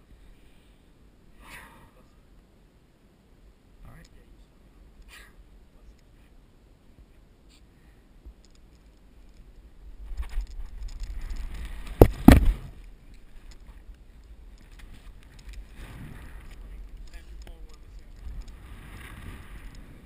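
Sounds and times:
sharp knocks: 0:12.0 - 0:12.7.

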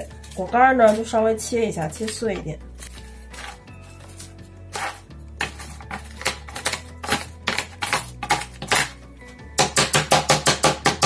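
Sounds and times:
background music: 0:00.0 - 0:11.0
rolling pin crushing nuts: 0:02.8 - 0:09.0.

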